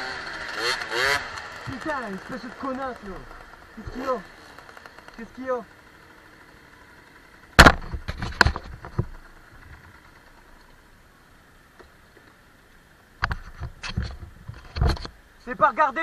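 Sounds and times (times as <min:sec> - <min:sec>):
sharp knocks and clatter: 0:07.5 - 0:10.5, 0:13.2 - 0:15.2.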